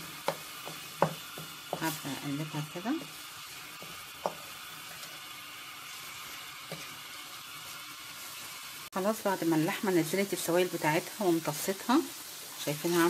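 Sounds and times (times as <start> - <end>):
wooden spoon stirring: 0.0 - 8.5
meat and onions sizzling in pan: 0.0 - 13.0.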